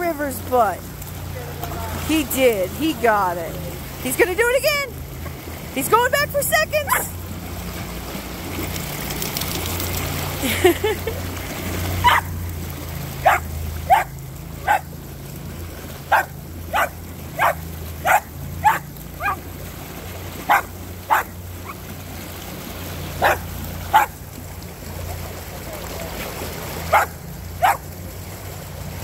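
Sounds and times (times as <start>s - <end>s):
puppy yapping: 12.0s - 12.4s, 13.2s - 14.9s, 16.1s - 19.4s, 20.4s - 21.8s, 23.2s - 24.2s, 26.9s - 27.9s.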